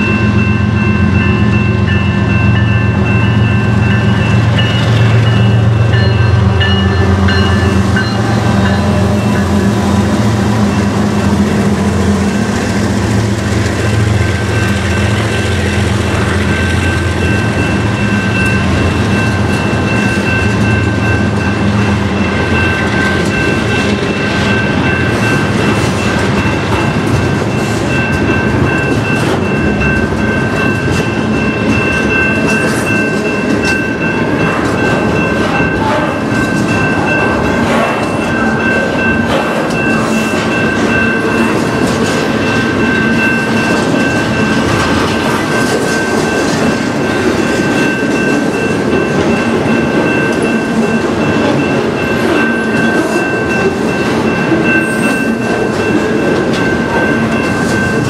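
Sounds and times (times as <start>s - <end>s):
locomotive engine drone: 0.0s - 58.0s
train wheels clattering: 0.3s - 58.0s
high-pitched ringing tone: 13.8s - 58.0s.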